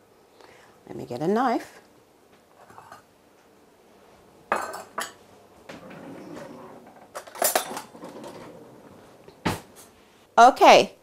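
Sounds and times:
cutlery clinking and clattering: 4.5s - 5.2s, 5.8s - 8.6s.

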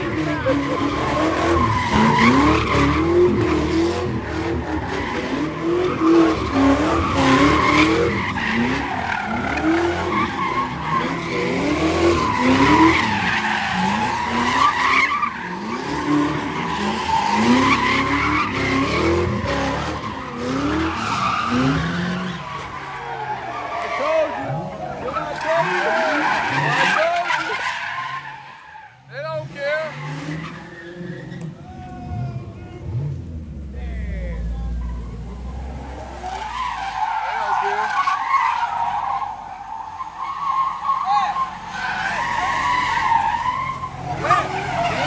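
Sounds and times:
engine revving: 0.0s - 14.7s, 15.4s - 22.7s
tyres screeching: 0.0s - 33.1s, 34.2s - 45.0s.

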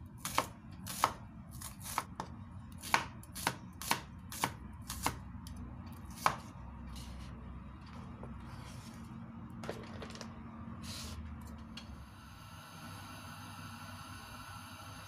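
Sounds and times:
cleaver chopping on cutting board: 0.2s - 5.2s, 6.1s - 6.5s.

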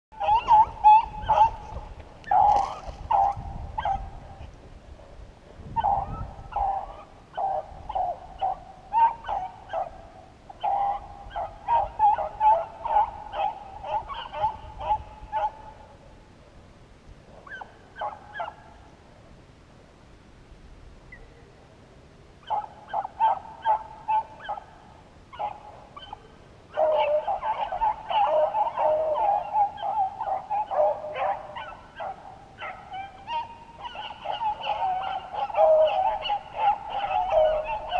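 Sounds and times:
dogs baying: 0.1s - 4.4s, 5.8s - 15.8s, 22.4s - 24.7s, 25.3s - 37.9s.

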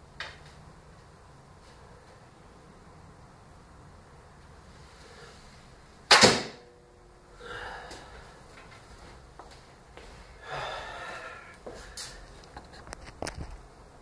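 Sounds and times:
footsteps and scuffing: 8.5s - 10.3s, 11.6s - 13.5s.

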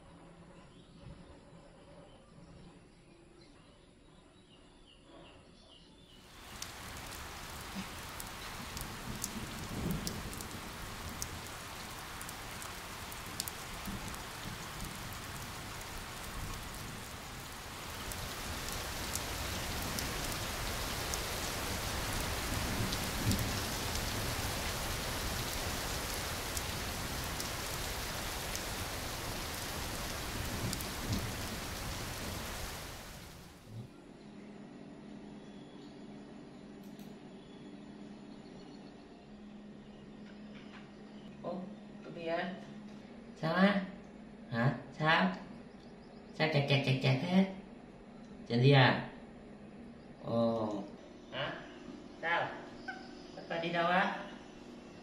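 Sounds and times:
heavy rain falling: 6.3s - 33.7s.

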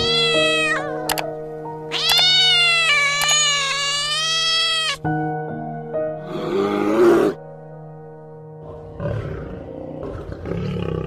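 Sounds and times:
cat meowing: 0.0s - 1.2s, 1.9s - 5.1s
background music: 0.0s - 11.0s.

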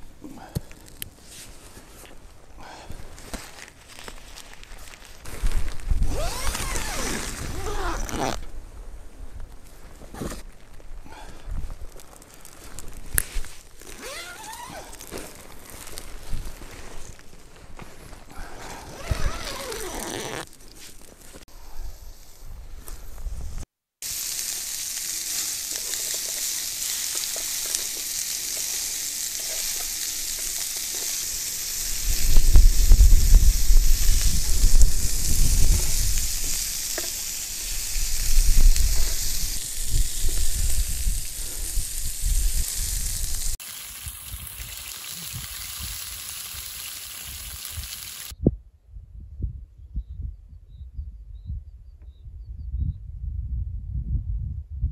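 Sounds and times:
meat sizzling on grill: 24.0s - 48.3s.

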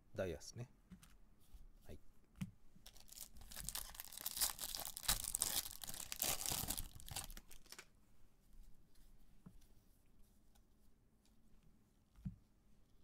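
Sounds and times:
foil wrapper tearing and crinkling: 2.9s - 7.9s.

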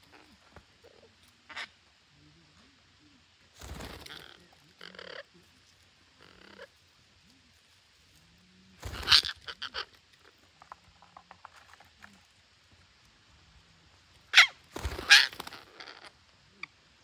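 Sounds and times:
parakeets squawking: 3.8s - 5.3s, 6.2s - 6.7s, 8.8s - 10.0s, 14.3s - 16.1s.

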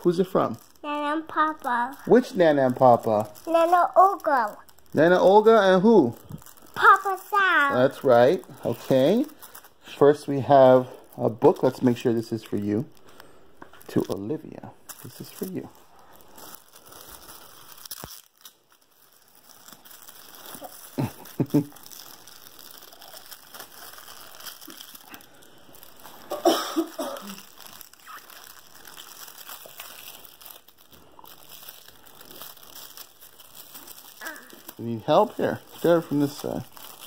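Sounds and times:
foil gift wrap crinkling: 0.0s - 37.0s
child voice sounds: 0.8s - 2.1s, 3.4s - 4.7s, 6.8s - 7.9s, 34.2s - 34.7s.

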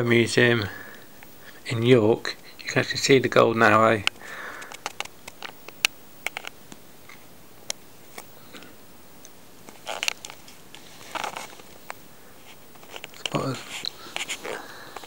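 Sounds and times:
paper rustling: 9.7s - 15.0s.

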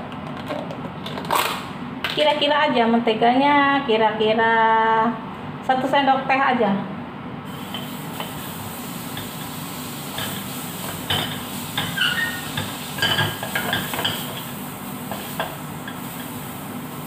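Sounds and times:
low hiss: 7.4s - 17.0s
utensil scraping in frying pan: 7.5s - 17.0s.

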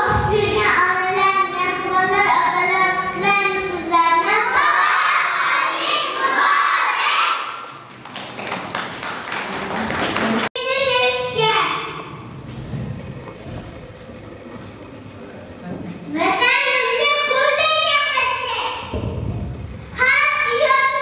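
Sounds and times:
children singing: 4.3s - 7.6s.

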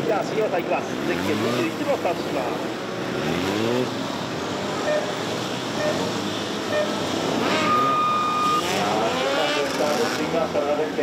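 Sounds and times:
motorcycle engine revving: 0.9s - 10.8s
high-pitched squeal: 6.8s - 9.2s.

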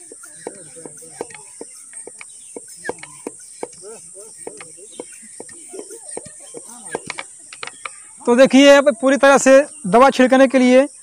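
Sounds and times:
hand pump sprayer clicking: 0.0s - 8.0s
high insect trill: 0.0s - 11.0s.

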